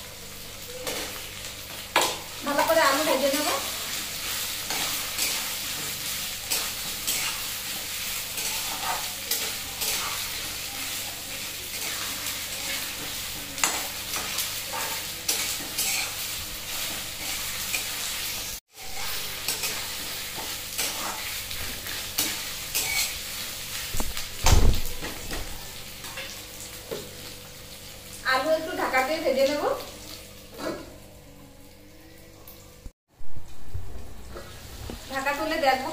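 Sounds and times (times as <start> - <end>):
potatoes sizzling in pan: 0.0 - 31.2, 33.4 - 35.9
metal spatula scraping pan: 4.2 - 11.0, 11.7 - 23.2.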